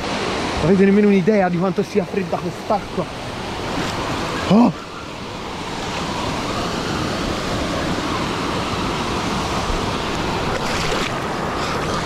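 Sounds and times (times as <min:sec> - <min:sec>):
water rushing over weir: 0:00.0 - 0:12.0
water sloshing close by: 0:09.6 - 0:12.0.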